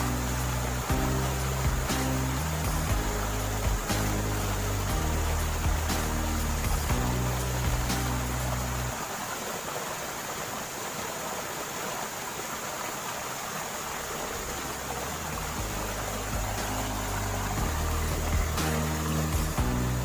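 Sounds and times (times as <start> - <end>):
low background music: 0.0 - 9.0, 14.2 - 20.0
stream rushing over rocks: 0.0 - 20.0.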